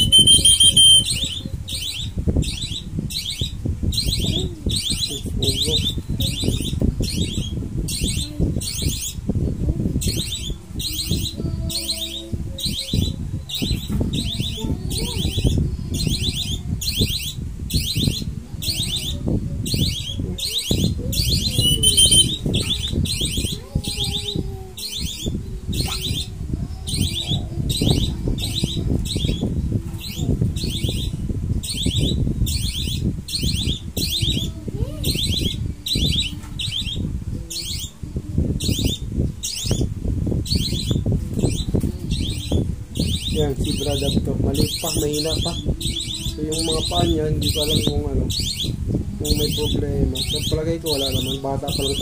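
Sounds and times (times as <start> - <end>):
whistle trilled chirps: 0.0 - 1.4, 21.6 - 22.4.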